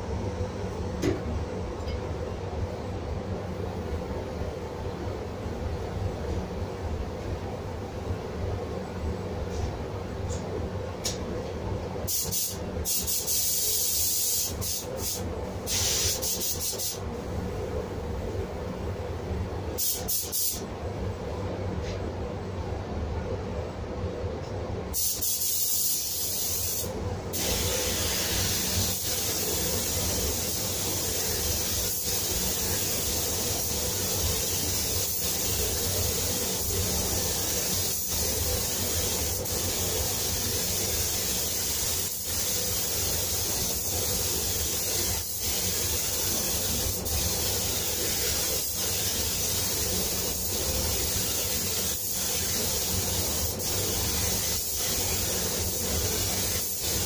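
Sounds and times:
spray gun hissing: 0:12.1 - 0:17.0, 0:19.8 - 0:20.6, 0:25.0 - 0:57.0.

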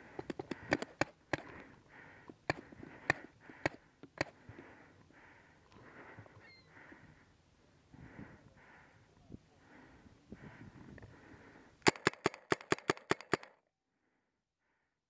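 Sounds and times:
hard rhythmic breathing: 0:00.0 - 0:13.2
paintball marker shots: 0:00.2 - 0:01.6, 0:11.8 - 0:13.5.

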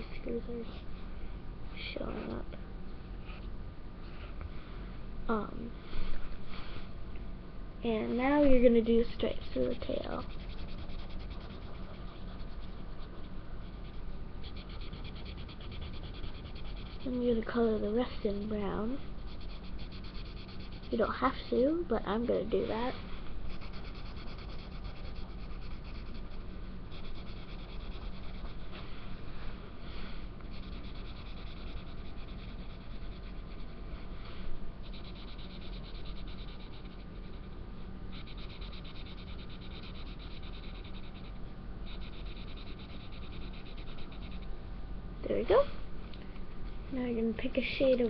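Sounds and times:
marker scribbling on paper: 0:09.2 - 0:17.4, 0:19.3 - 0:21.2, 0:23.5 - 0:28.7, 0:30.5 - 0:33.7.

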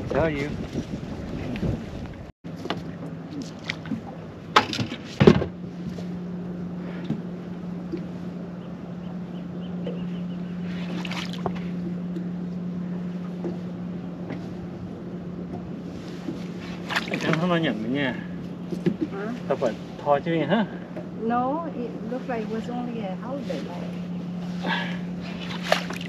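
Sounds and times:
boat motor humming: 0:00.0 - 0:26.0
sharp knocks on boat: 0:02.5 - 0:06.0, 0:13.2 - 0:13.6, 0:14.2 - 0:14.6, 0:18.7 - 0:19.3.

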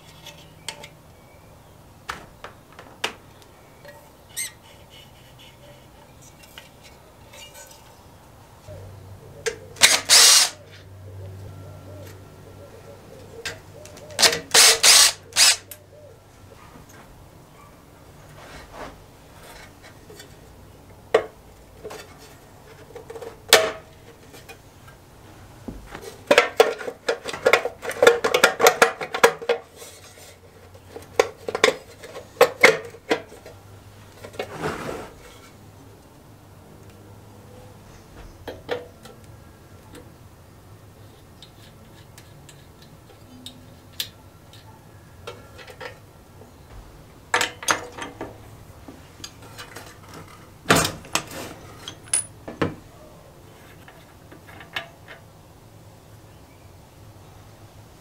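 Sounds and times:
engine parts clattering: 0:25.7 - 0:33.6, 0:46.7 - 0:52.8.

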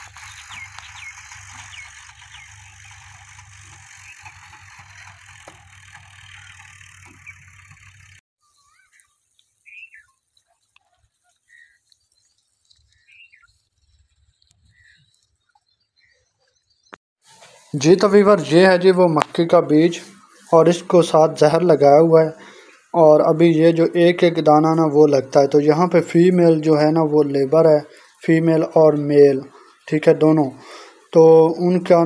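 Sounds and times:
distant tractor engine hum: 0:00.0 - 0:11.7.

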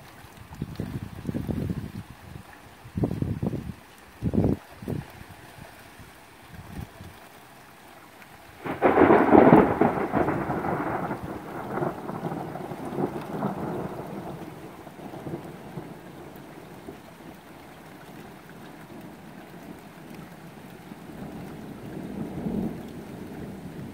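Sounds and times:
steady rain: 0:00.0 - 0:23.9
thunderclap: 0:08.6 - 0:16.0.

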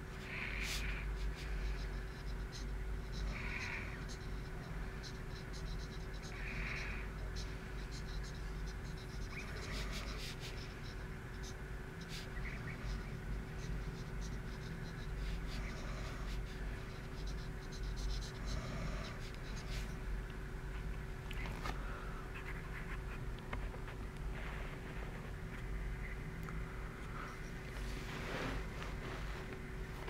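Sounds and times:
steady low hum: 0:00.0 - 0:30.0
pencil scratching on paper: 0:00.4 - 0:20.0.

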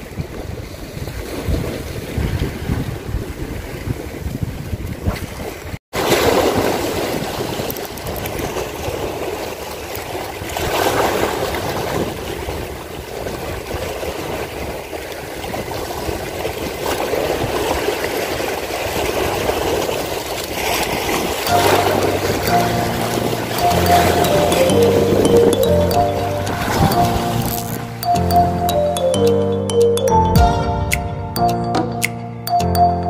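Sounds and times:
wind buffeting microphone: 0:00.0 - 0:05.8, 0:06.4 - 0:23.6
sea waves washing over rocks: 0:00.0 - 0:28.5.

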